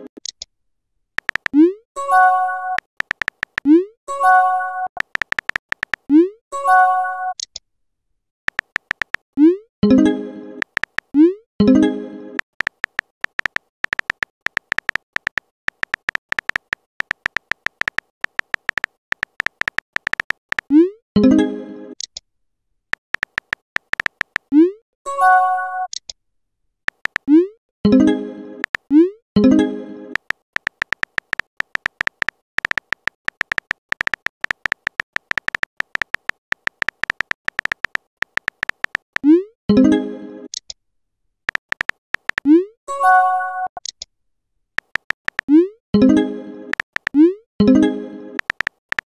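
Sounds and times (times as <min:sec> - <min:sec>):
keyboard tap clicks: 0:01.2 - 0:01.6, 0:02.7 - 0:03.7, 0:05.0 - 0:06.1, 0:08.5 - 0:09.2, 0:10.6 - 0:11.1, 0:12.5 - 0:20.7, 0:23.0 - 0:24.5, 0:26.9 - 0:27.3, 0:28.6 - 0:28.8, 0:30.2 - 0:39.2, 0:41.5 - 0:42.5, 0:44.8 - 0:45.5, 0:46.7 - 0:47.2, 0:48.4 - 0:49.0.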